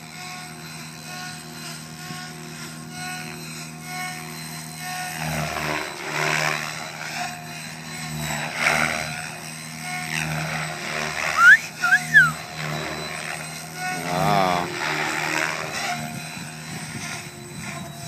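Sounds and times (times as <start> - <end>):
rising and falling whistles: 11.4 - 12.4.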